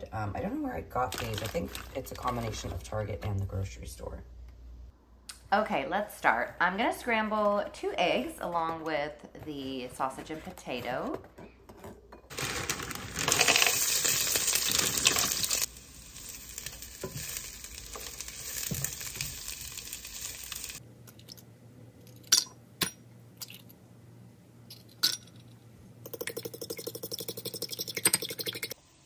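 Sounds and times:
food sizzling in a frying pan: 0:12.3 - 0:20.8.

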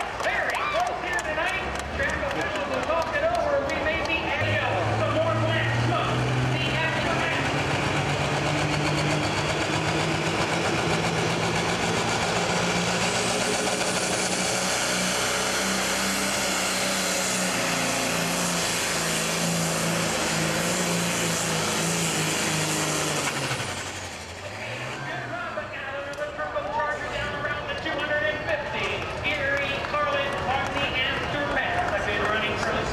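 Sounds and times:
diesel engine droning under load: 0:00.0 - 0:32.9.

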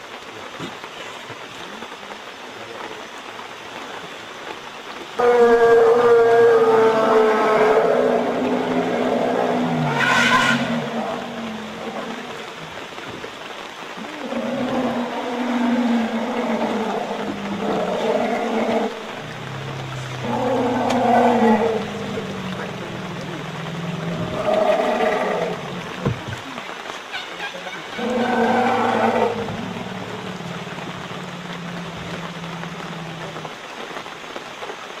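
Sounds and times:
night-time jungle hiss: 0:00.0 - 0:35.0
elephant long low call: 0:05.2 - 0:12.7
low elephant rumble: 0:14.0 - 0:26.4, 0:28.0 - 0:33.6.

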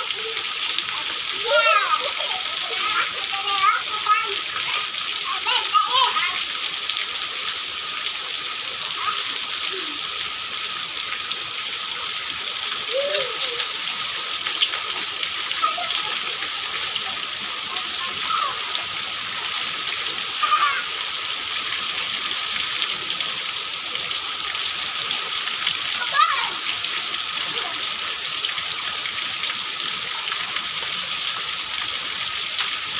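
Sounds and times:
steady rain hiss: 0:00.0 - 0:32.9
faint children's calls: 0:08.9 - 0:10.2, 0:12.8 - 0:13.9, 0:20.3 - 0:21.0.

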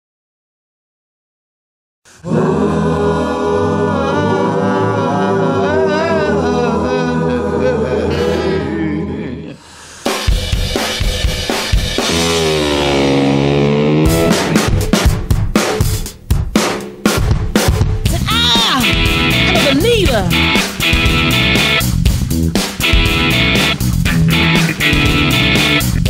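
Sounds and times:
drums: 0:09.8 - 0:26.0
rock and roll guitar chord: 0:11.3 - 0:15.1, 0:18.8 - 0:26.0.

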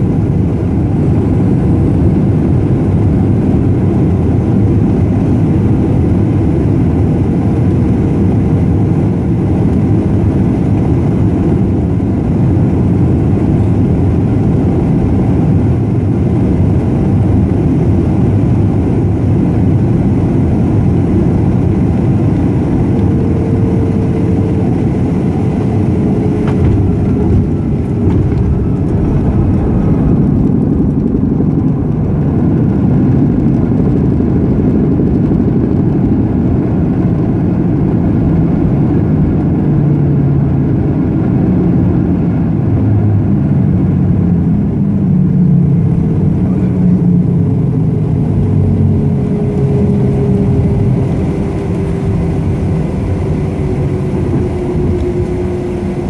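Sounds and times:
engine and airflow rumble: 0:00.0 - 0:56.0
landing roll rumble: 0:26.2 - 0:32.4.

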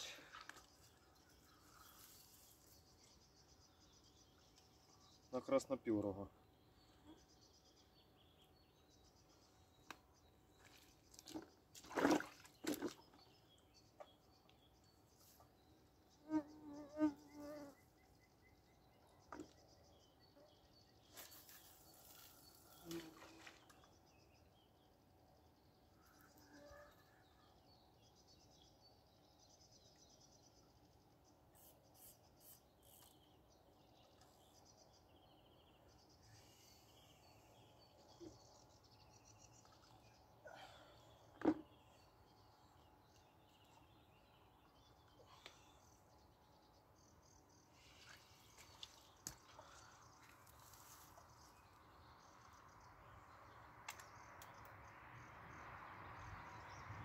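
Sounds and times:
faint insect buzz: 0:16.2 - 0:17.9.

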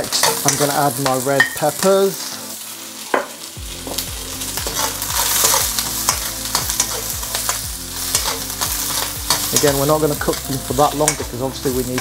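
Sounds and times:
metal ladle scraping a wok: 0:00.0 - 0:00.7, 0:03.8 - 0:09.8
vegetables sizzling in hot oil: 0:00.0 - 0:12.0.

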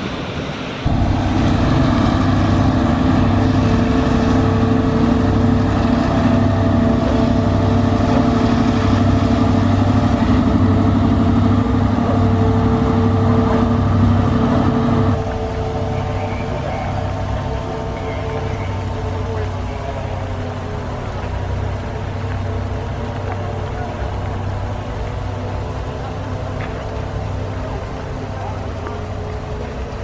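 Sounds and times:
deep engine running steadily: 0:00.8 - 0:30.0.

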